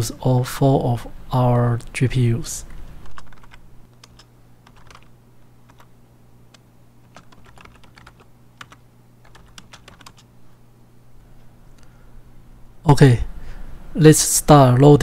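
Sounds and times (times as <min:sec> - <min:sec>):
steady low hum: 0:00.0 - 0:15.0
keyboard keys clicking: 0:03.0 - 0:05.1, 0:05.7 - 0:05.9, 0:06.5 - 0:10.3.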